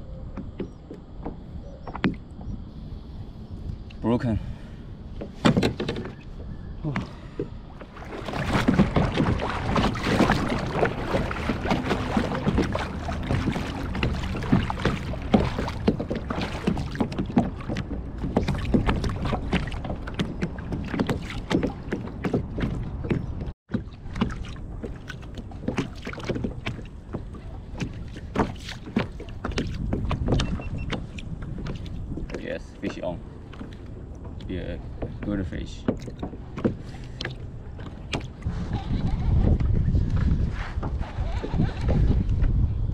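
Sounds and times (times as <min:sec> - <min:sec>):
small waves lapping against hull: 0:00.0 - 0:42.9
wind on microphone: 0:05.0 - 0:42.9
short knocks and splashes: 0:06.9 - 0:38.5.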